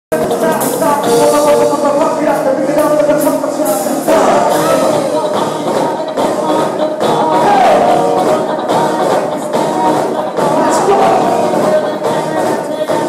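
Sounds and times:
drums: 0.1 - 13.0
electric guitars: 0.1 - 13.0
keyboard: 0.1 - 13.0
person singing: 0.1 - 13.0.

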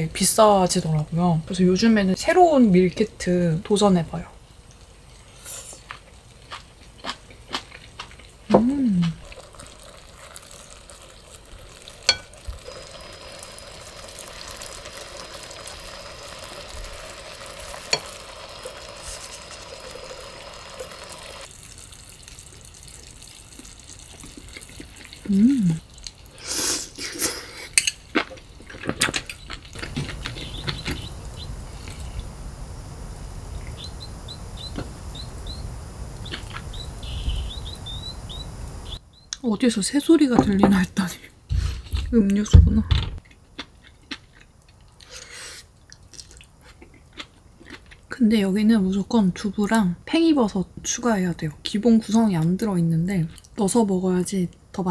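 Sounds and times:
pot simmering: 2.6 - 39.0
small bird-like chirps: 30.2 - 32.3, 33.6 - 39.4.

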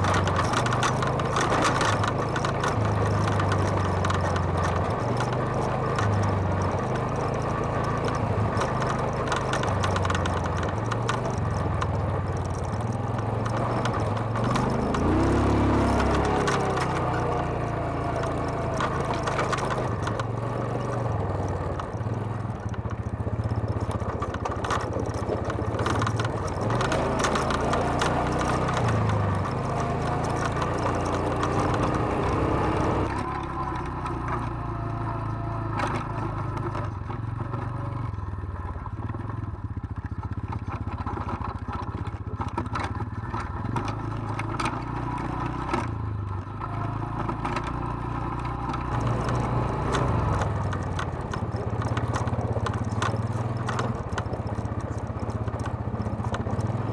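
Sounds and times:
clattering and scraping on rocks: 0.0 - 32.3, 48.5 - 56.9
quad bike engine running: 0.0 - 56.9.

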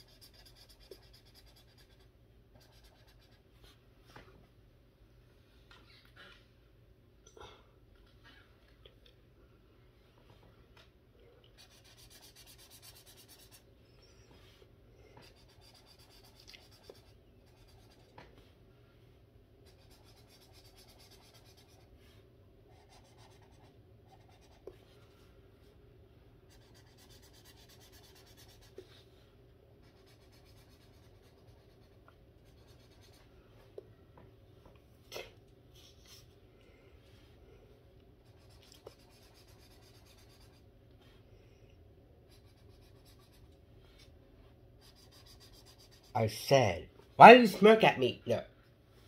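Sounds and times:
marker scratching on paper: 0.0 - 3.8, 11.6 - 13.7, 15.1 - 18.2, 19.6 - 25.0, 26.5 - 29.0, 29.8 - 33.3, 38.2 - 40.6, 42.3 - 44.1, 44.8 - 46.3.

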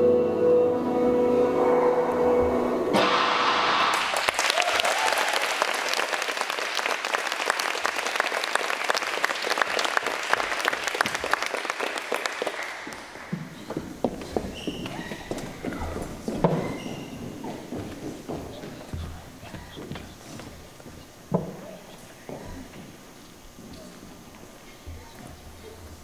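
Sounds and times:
music playing: 0.0 - 3.9
audience clapping: 3.6 - 13.8.

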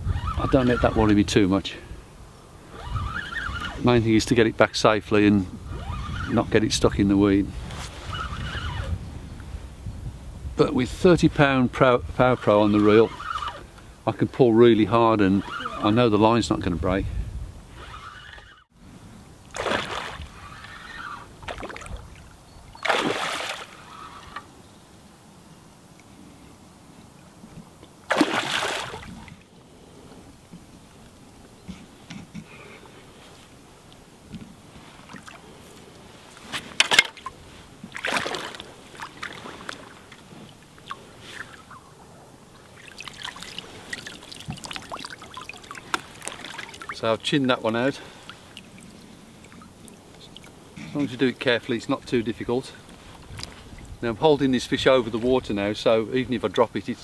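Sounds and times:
fish splashing at water surface: 19.6 - 20.3, 22.8 - 23.8, 28.1 - 29.3, 42.8 - 47.0.

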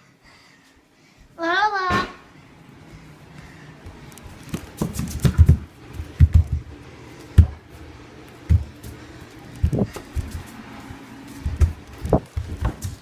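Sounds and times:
bare feet on tiled floor: 2.7 - 13.0.

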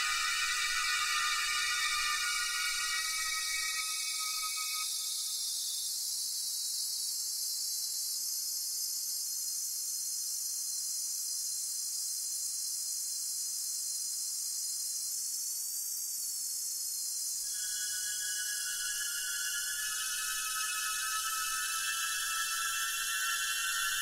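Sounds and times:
synthesizer filtered noise hiss: 0.0 - 4.8, 17.5 - 24.0.

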